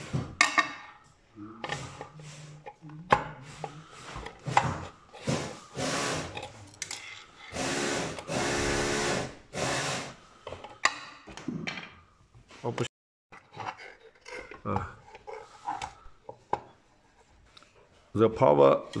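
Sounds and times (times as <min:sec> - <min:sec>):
electric screwdriver running: 0:07.5 - 0:10.2.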